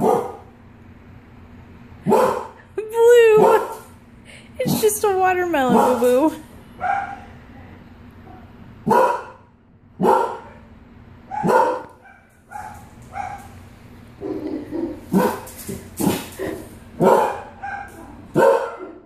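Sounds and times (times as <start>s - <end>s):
dog barking: 0.0s - 0.5s, 2.0s - 2.6s, 3.4s - 3.8s, 5.7s - 6.1s, 6.8s - 7.3s, 8.2s - 10.7s, 11.3s - 13.6s, 15.1s - 16.3s, 17.0s - 19.0s.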